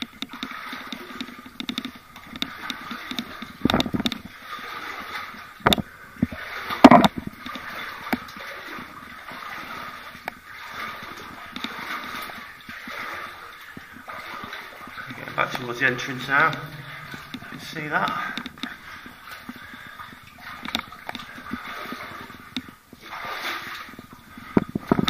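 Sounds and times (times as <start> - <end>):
footsteps splashing in shallow water: 0.0 - 25.0
sharp knocks: 6.8 - 7.3.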